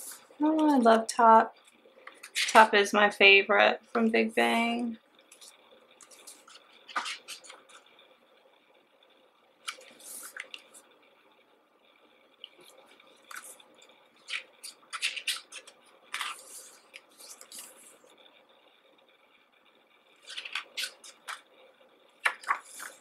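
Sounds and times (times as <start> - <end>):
booklet pages rustling: 0.0 - 1.0, 1.6 - 2.7, 5.3 - 7.9, 9.6 - 10.8, 12.4 - 18.1, 20.2 - 21.5, 22.2 - 23.0.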